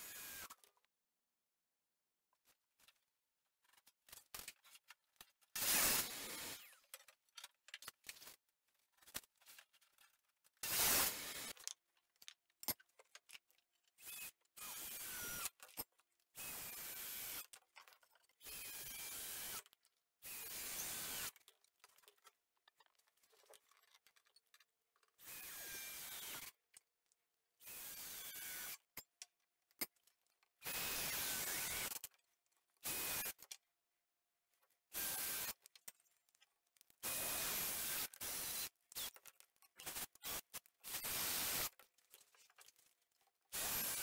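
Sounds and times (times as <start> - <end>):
cordless drill driving screws: 0.0 - 0.6, 5.6 - 6.8, 10.6 - 11.6, 14.0 - 15.5, 16.4 - 17.5, 18.4 - 21.4, 25.2 - 26.5, 27.6 - 28.8, 30.6 - 32.0, 32.8 - 33.5, 34.9 - 35.6, 37.0 - 41.8, 43.5 - 44.0.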